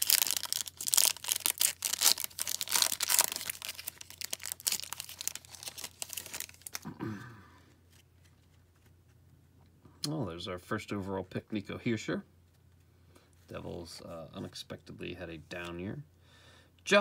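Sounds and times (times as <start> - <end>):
plastic wrapper crackling and tearing: 0.0 - 6.8.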